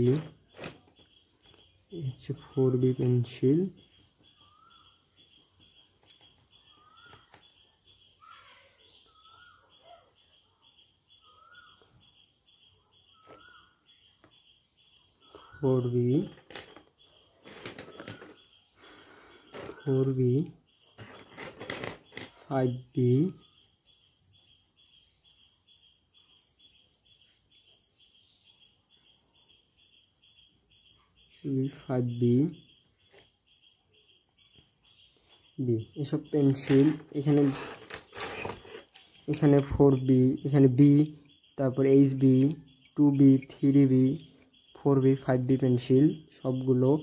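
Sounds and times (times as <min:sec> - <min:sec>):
pencil scratching on paper: 0:00.0 - 0:16.3
high pulsing bird call: 0:00.0 - 0:21.2
bird rising chirp: 0:00.0 - 0:47.0.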